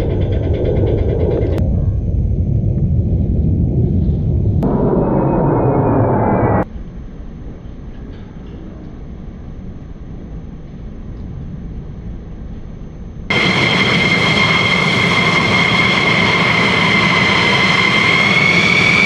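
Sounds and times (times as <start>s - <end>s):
distant jet rumble: 0.0s - 6.7s
jet engine whine: 0.0s - 7.9s, 9.4s - 19.0s.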